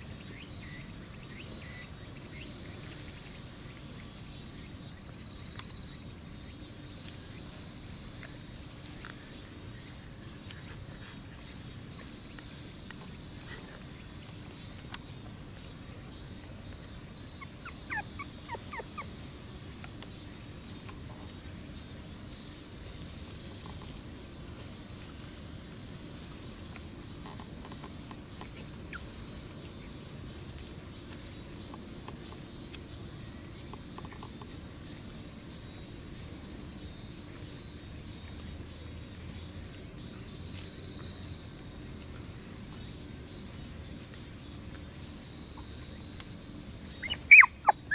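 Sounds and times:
high insect drone: 0:00.0 - 0:47.9
rustling in grass: 0:00.0 - 0:47.9
puppies squeaking: 0:17.3 - 0:19.3, 0:47.0 - 0:47.9.

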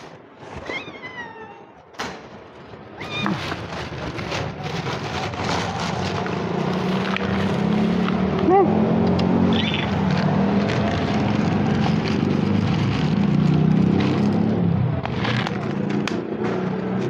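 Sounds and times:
cat meowing: 0:00.6 - 0:01.8, 0:03.0 - 0:03.6.

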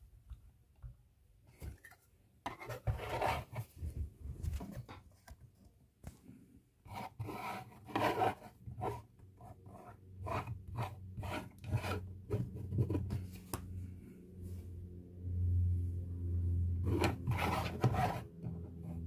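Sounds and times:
plastic stand scraping on desk: 0:06.9 - 0:09.0, 0:10.3 - 0:13.2, 0:16.8 - 0:19.0.

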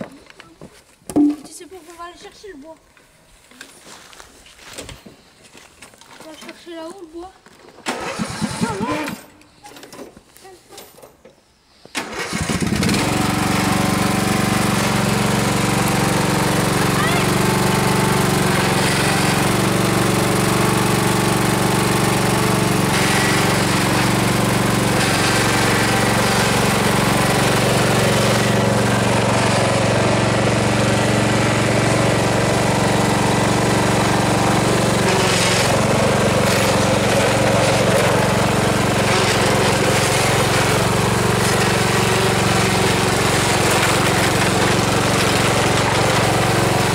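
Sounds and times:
riding lawn mower engine: 0:07.8 - 0:10.1, 0:11.9 - 0:46.9.

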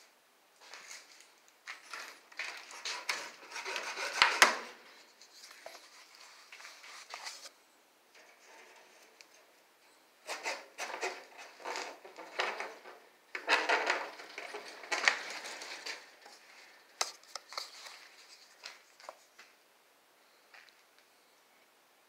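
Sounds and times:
wire mesh scraping and rattling: 0:08.1 - 0:09.5, 0:10.2 - 0:16.2.

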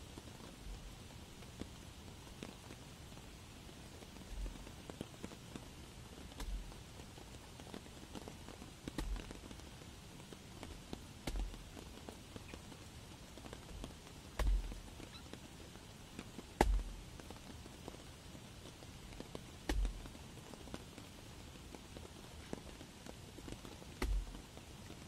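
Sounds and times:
rain hissing: 0:00.0 - 0:25.0
hatchet chopping wet log: 0:09.0 - 0:09.3, 0:11.2 - 0:11.5, 0:14.4 - 0:14.7, 0:16.6 - 0:16.9, 0:19.7 - 0:20.0, 0:24.0 - 0:24.4
light wood knocks: 0:14.4 - 0:15.4, 0:24.0 - 0:24.4.

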